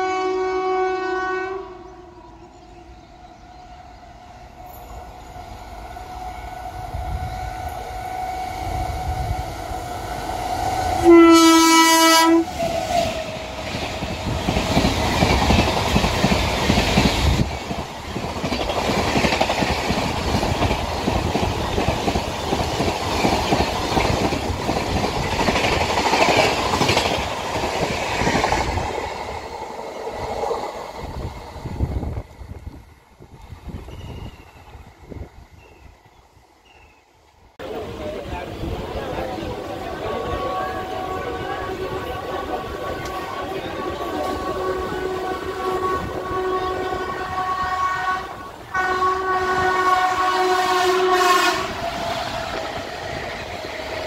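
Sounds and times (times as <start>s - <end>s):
train horn blast: 0.0s - 2.3s, 6.0s - 9.4s, 10.8s - 13.6s, 39.9s - 52.0s
electric locomotive hum: 0.0s - 54.0s
train wheels clickety-clack: 12.4s - 32.6s.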